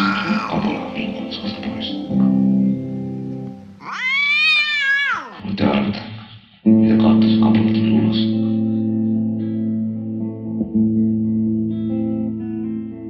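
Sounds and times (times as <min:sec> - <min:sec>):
cat meowing: 0:00.0 - 0:00.8, 0:03.8 - 0:05.4
slow guitar music: 0:00.0 - 0:04.3, 0:06.6 - 0:13.0.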